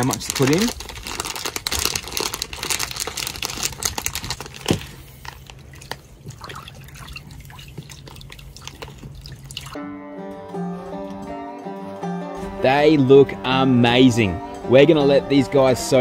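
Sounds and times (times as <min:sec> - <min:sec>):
plastic bag crinkling: 0:00.0 - 0:06.6
guitar music: 0:09.8 - 0:16.0.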